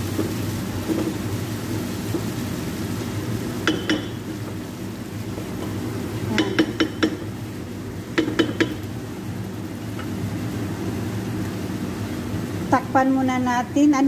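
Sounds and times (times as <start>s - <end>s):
utensils clinking against a pan: 3.6s - 4.3s, 6.3s - 7.3s, 8.2s - 8.9s.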